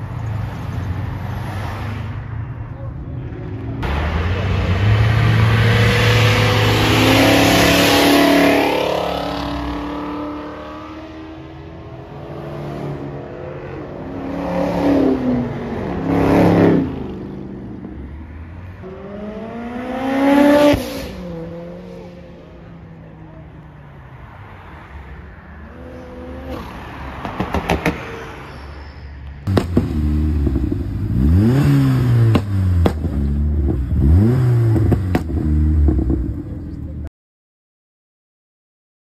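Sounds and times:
car engines revving loudly: 3.2s - 23.6s, 24.8s - 28.0s, 29.4s - 37.1s
cars accelerating past: 3.5s - 22.9s, 29.4s - 36.8s.

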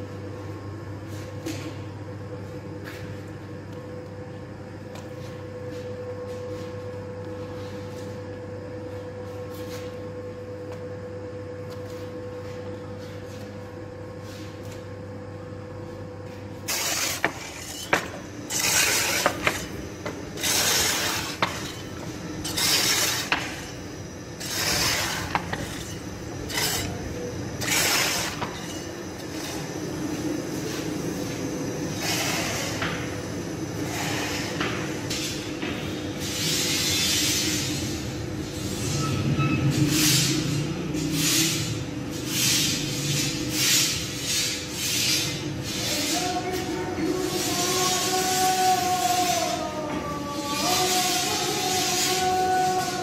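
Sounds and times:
dough mixer humming: 15.4s - 36.1s.

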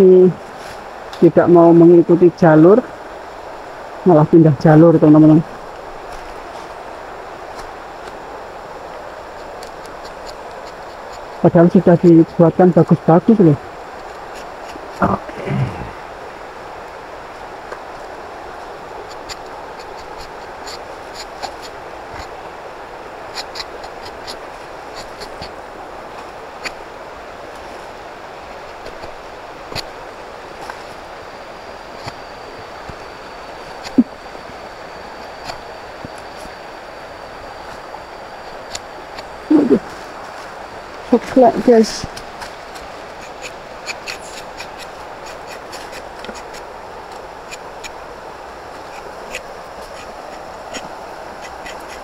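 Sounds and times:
steady rushing outdoor noise: 0.0s - 52.0s
rasping scrape: 19.0s - 22.4s, 23.3s - 25.6s, 42.8s - 46.7s, 48.8s - 52.0s.

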